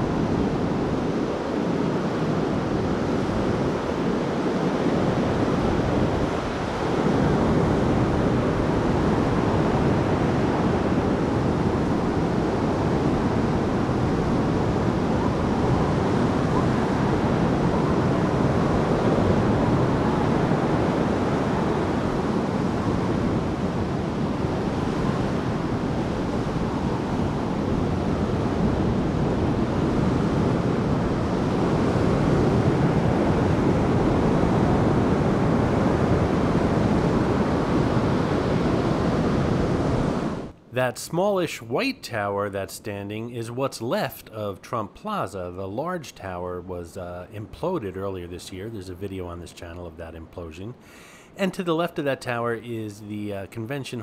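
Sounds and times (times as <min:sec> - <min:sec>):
wind buffeting microphone: 0:00.0 - 0:40.6
ocean surf washing onto beach: 0:00.0 - 0:48.5.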